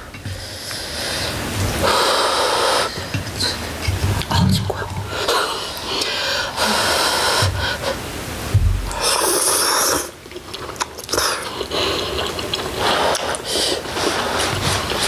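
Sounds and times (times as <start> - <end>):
slurping noodles: 9.0 - 15.0.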